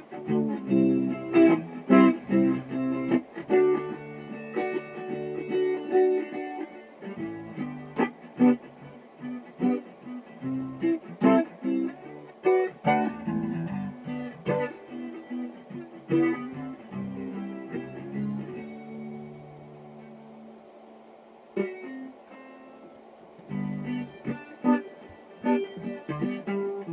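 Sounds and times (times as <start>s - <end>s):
solo guitar playing: 0.0s - 20.8s, 21.5s - 26.9s.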